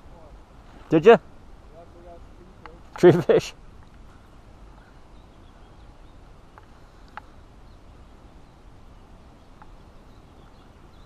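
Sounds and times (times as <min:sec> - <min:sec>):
faint high ticks: 0:02.6 - 0:03.2, 0:06.5 - 0:07.4, 0:09.5 - 0:09.8.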